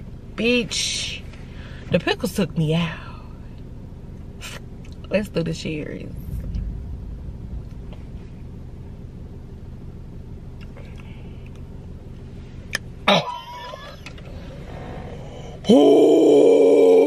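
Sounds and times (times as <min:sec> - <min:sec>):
low hum in car cabin: 0:00.0 - 0:17.0
woman wavering ooh: 0:15.6 - 0:17.0.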